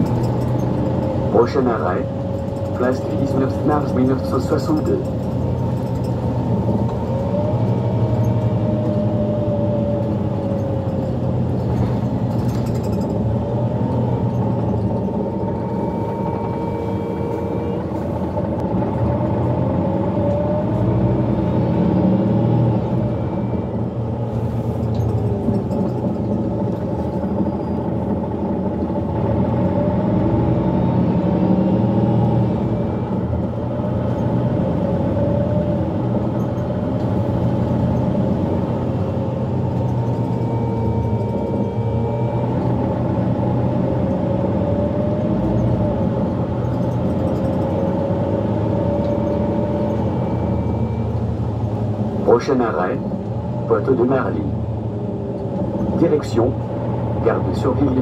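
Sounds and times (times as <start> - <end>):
bus engine rumble and whine: 0.0 - 58.0
road noise: 0.0 - 58.0.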